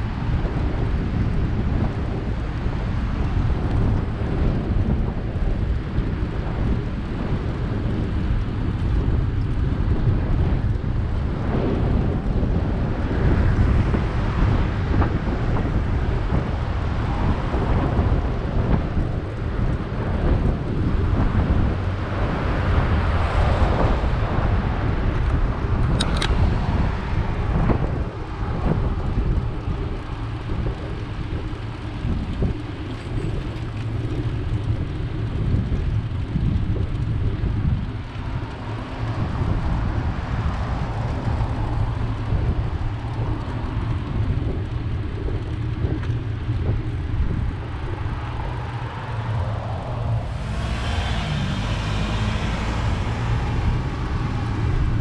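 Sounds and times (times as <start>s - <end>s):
wind buffeting microphone: 0.0s - 55.0s
sharp click: 26.0s - 26.4s.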